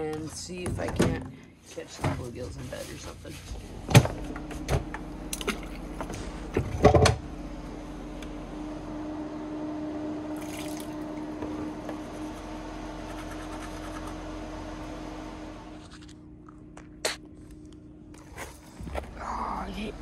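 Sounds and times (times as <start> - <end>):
steady hum with low tone: 0.0 - 20.0
toothbrush scrubbing teeth: 13.0 - 14.2.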